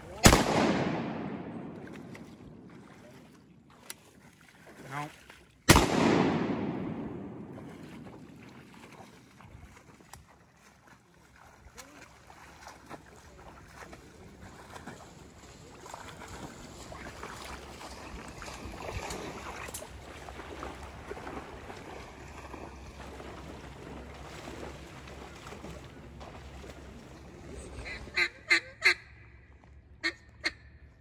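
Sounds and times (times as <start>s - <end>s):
waders sloshing through water: 0.0s - 30.9s
duck quacks: 27.8s - 29.1s, 30.0s - 30.6s.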